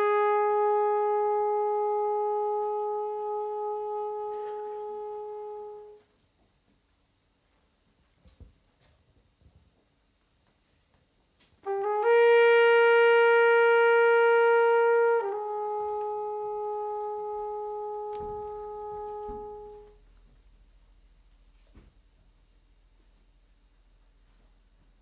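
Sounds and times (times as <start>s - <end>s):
long held brass-like note: 0.0s - 6.1s, 11.6s - 20.3s.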